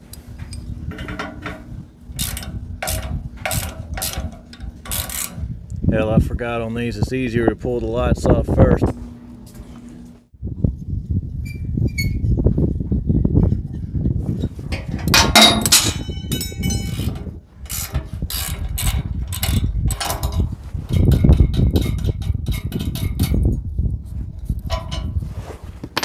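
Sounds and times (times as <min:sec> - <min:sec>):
wrench clicking on metal bolts: 0:02.2 - 0:05.4
ringing metallic clang: 0:15.2 - 0:17.0.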